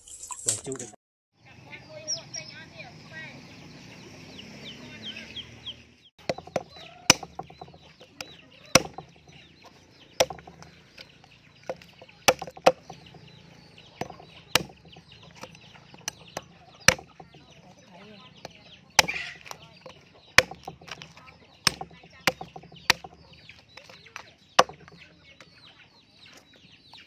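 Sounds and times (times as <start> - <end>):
knife chopping meat and bone: 6.2 - 25.0
chickens clucking: 6.6 - 27.0.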